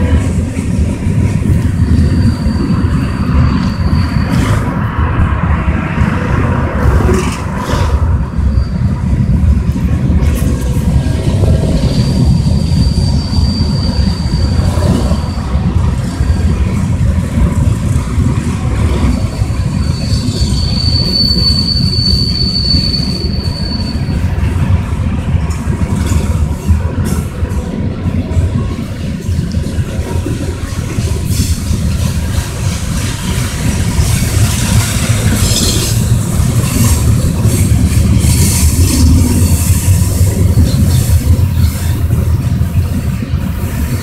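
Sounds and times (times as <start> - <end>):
freight train wheels rumbling: 0.0 - 44.0
high-pitched wheel squeal: 1.4 - 5.0, 7.3 - 9.6, 11.7 - 16.5, 19.0 - 24.6.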